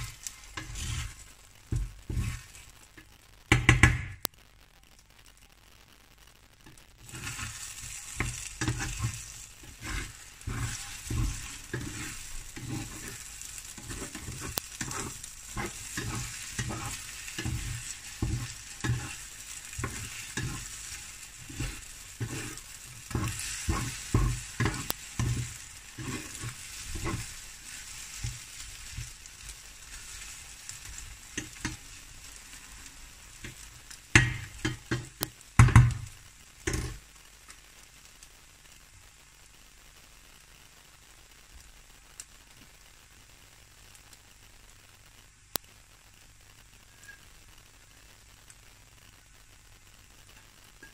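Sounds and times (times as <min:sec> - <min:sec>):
spatula scraping frying pan: 0:00.0 - 0:02.8, 0:07.0 - 0:36.1, 0:36.7 - 0:37.0
fat sizzling: 0:00.0 - 0:50.9.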